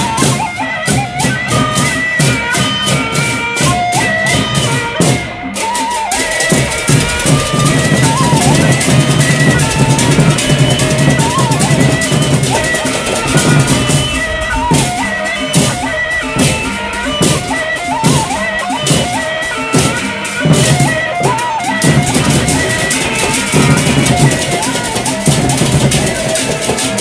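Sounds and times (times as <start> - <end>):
barrel drums beaten: 0.0 - 27.0
pitched melody line: 0.0 - 27.0
hand cymbals clashing: 0.1 - 27.0.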